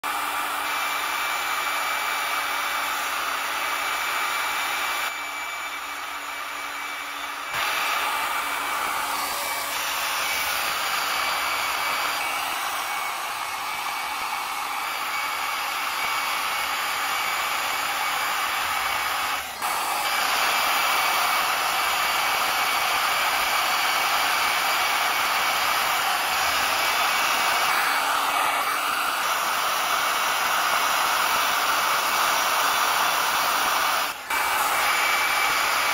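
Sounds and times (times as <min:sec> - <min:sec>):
belt polishing machine whirring: 0:00.0 - 0:35.9.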